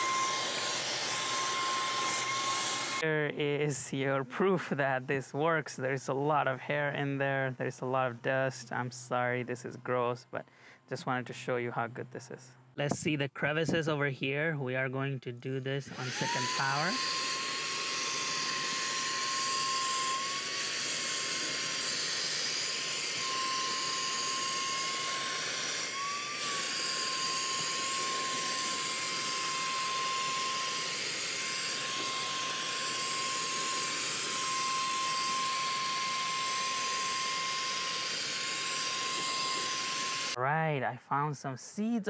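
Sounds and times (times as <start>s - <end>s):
cordless vacuum whining: 0.0s - 3.0s, 15.9s - 40.4s.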